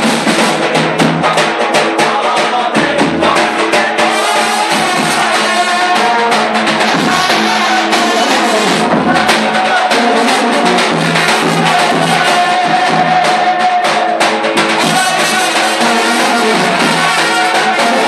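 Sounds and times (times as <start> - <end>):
bass drum beat: 0.0 - 18.0
trumpets playing melody: 14.8 - 18.0.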